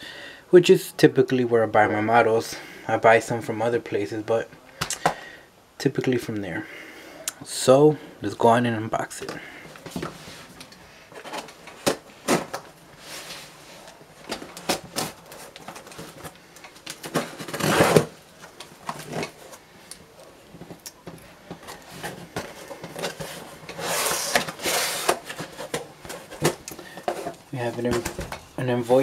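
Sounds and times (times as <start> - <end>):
scratchy rubbing: 22.5 - 25.8.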